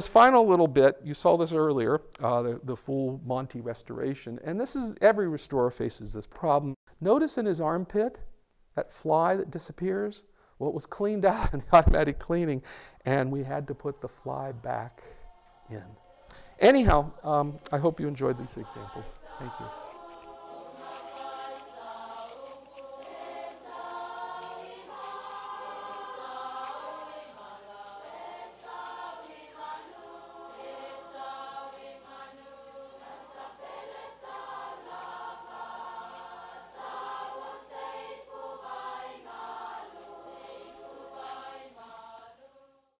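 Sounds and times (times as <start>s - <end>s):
choir singing: 13.1s - 43.0s.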